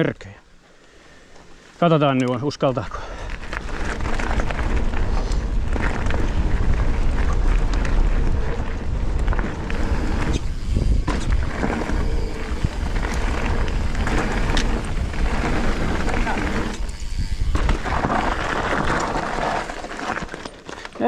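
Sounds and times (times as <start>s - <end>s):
bike clicking and rattling: 1.3s - 21.0s
tyres rolling on dirt: 1.9s - 21.0s
wind buffeting microphone: 3.3s - 19.5s.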